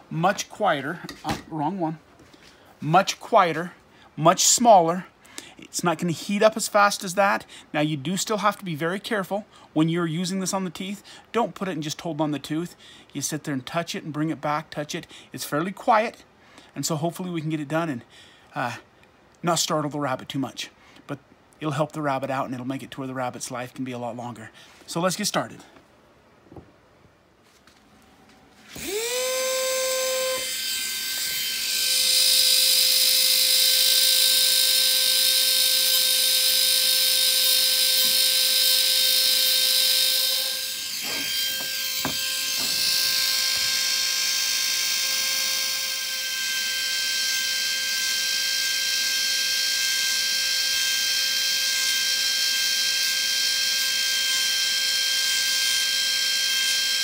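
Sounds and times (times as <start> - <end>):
rotary tool high whine: 28.6 - 57.0
drill bit grinding teeth: 28.7 - 57.0.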